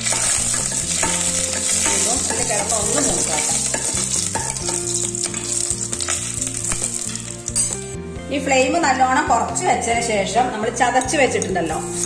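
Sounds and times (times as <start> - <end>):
metal ladle stirring: 0.0 - 7.8
spices sizzling in hot oil: 0.0 - 8.1, 11.4 - 12.0.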